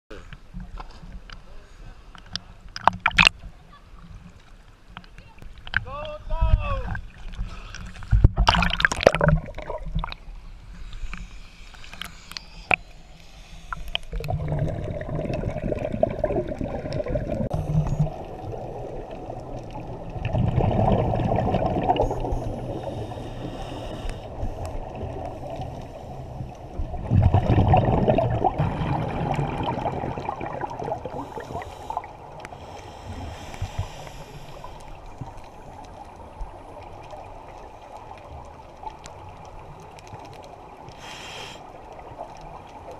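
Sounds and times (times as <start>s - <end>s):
muffled underwater breath bubbling: 10.8s - 18.3s, 20.4s - 26.6s, 27.3s - 35.4s, 40.9s - 41.8s.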